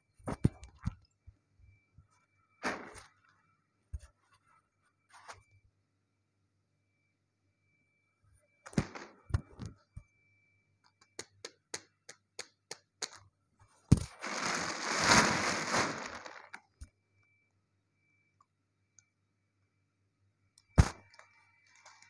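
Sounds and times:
plastic bag crinkling: 14.0s - 16.6s.

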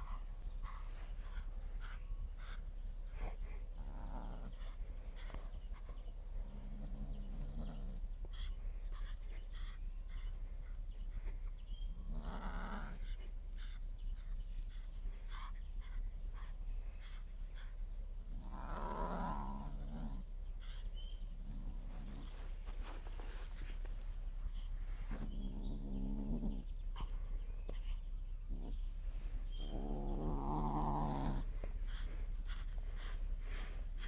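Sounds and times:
light ticks and rustles: 0.0s - 34.0s
kitten growling: 3.2s - 5.3s, 18.3s - 20.2s, 28.4s - 34.0s.

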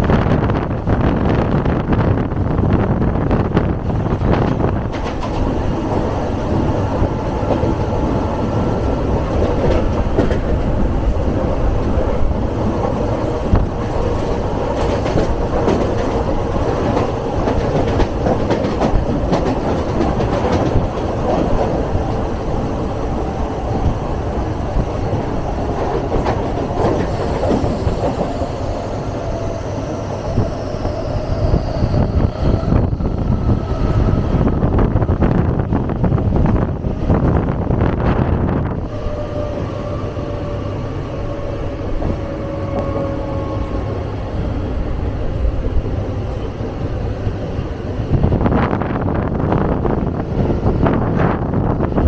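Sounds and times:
train rumble on rails: 0.0s - 52.0s
wheels clicking over rail joints: 4.1s - 24.0s.

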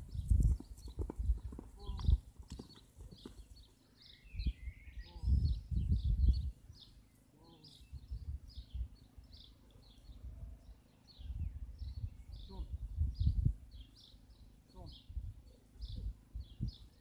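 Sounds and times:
horse hooves trotting on grass: 0.0s - 3.8s
songbirds chirping: 0.0s - 17.0s.

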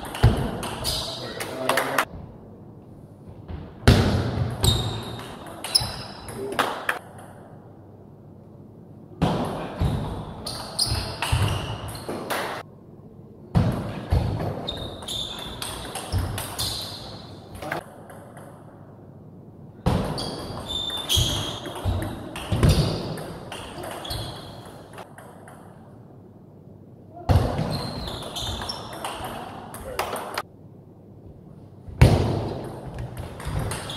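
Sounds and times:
shoe squeaks on floor: 10.4s - 12.1s, 14.6s - 15.6s, 20.2s - 21.9s, 23.8s - 24.7s, 27.7s - 28.9s.

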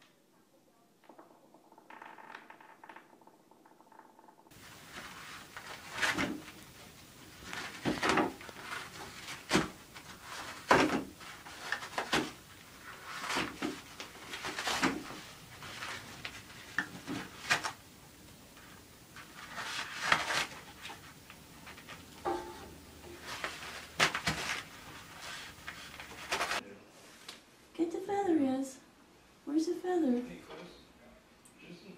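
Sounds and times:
toilet paper rustling and tearing: 4.6s - 17.8s, 19.1s - 22.1s, 23.1s - 26.6s.

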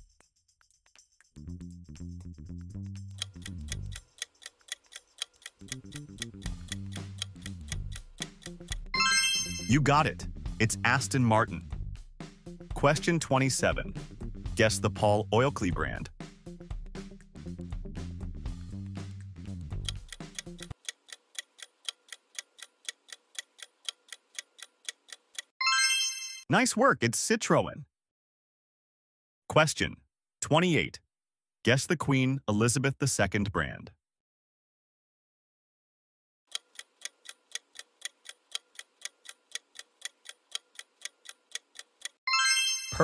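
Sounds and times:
clock ticking rapidly: 3.1s - 9.9s, 19.6s - 25.5s, 36.5s - 42.2s
background music: 5.6s - 20.8s, 25.6s - 26.4s, 42.3s - 43.0s.

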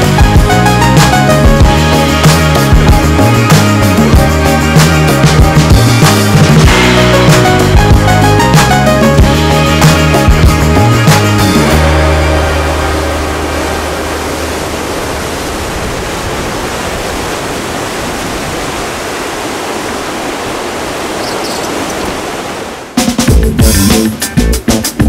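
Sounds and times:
background music: 0.0s - 15.0s, 23.0s - 25.0s
lake surf breaking: 0.0s - 23.3s.

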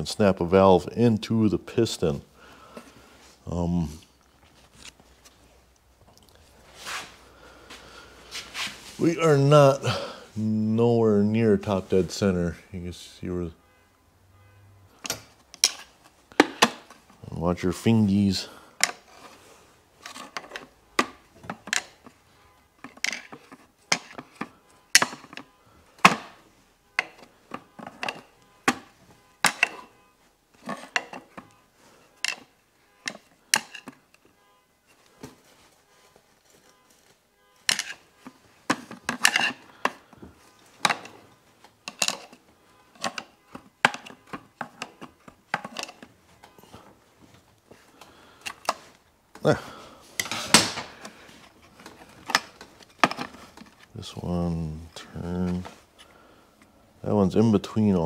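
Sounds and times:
tools and metal parts clinking: 15.0s - 17.0s, 20.0s - 22.2s, 22.8s - 26.4s, 27.0s - 30.0s, 32.2s - 34.2s, 36.4s - 41.2s, 41.8s - 46.8s.

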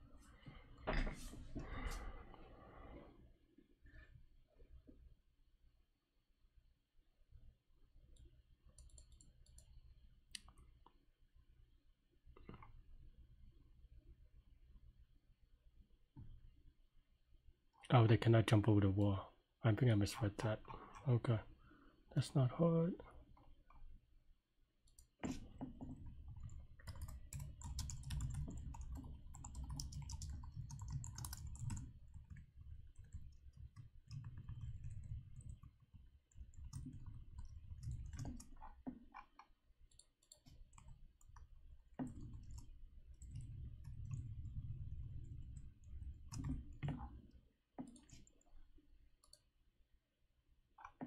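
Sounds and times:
computer keyboard typing: 24.9s - 47.1s.

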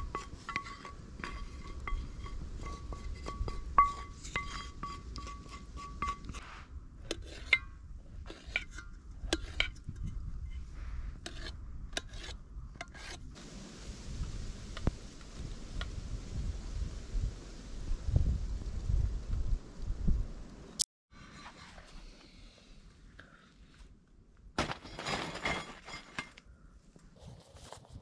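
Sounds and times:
metal cookware clinking and scraping: 0.0s - 6.4s
steady hiss: 13.4s - 20.8s.

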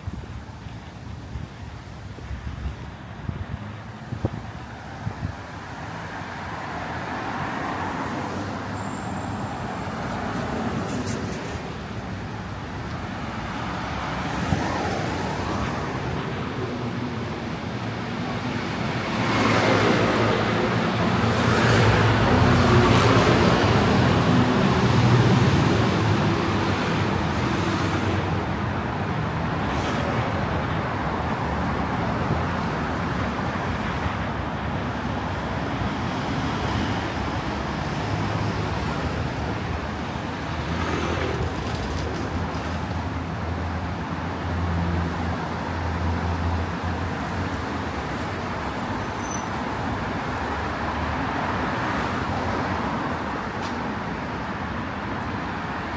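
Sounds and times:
road traffic passing: 0.0s - 55.9s.

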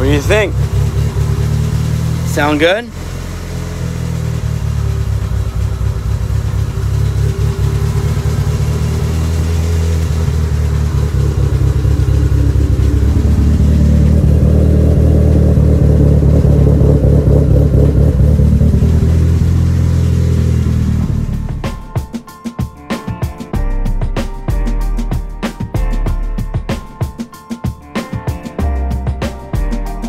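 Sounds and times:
car engine idling: 0.0s - 22.2s.

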